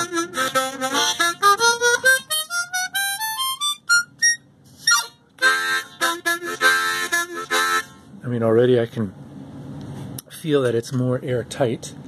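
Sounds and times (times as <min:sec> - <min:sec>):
harmonica playing: 0:00.0 - 0:08.1.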